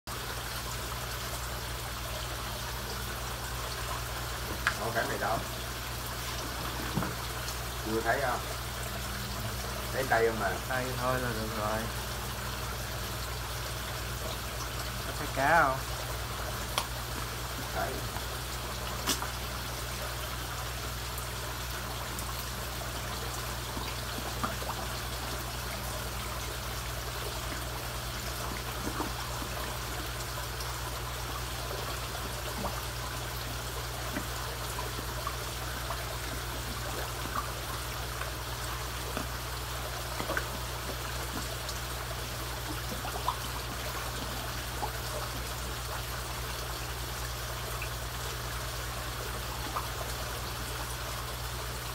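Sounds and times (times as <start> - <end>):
low steady hum: 0.1 - 51.9
water trickling into pond: 0.1 - 51.9
fish splashing: 2.6 - 7.8, 15.9 - 50.7.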